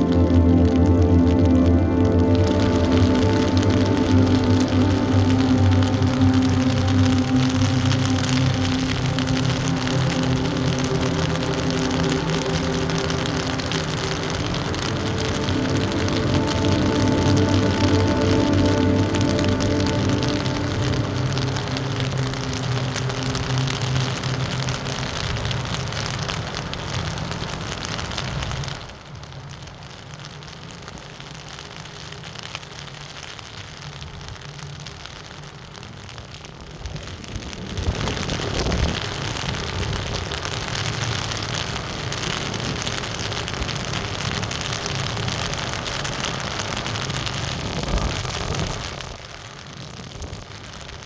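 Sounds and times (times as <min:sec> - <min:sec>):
diesel engine drone: 0:00.0 - 0:29.0
wind buffeting microphone: 0:36.8 - 0:40.4, 0:47.5 - 0:49.2.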